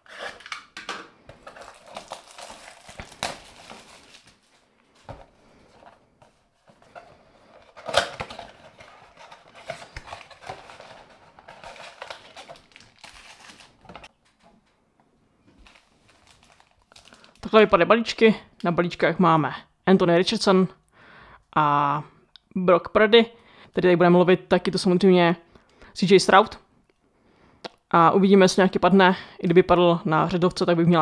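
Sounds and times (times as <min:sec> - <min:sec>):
shrink-wrap crinkling and crackling: 0:01.3 - 0:14.2, 0:15.5 - 0:17.7.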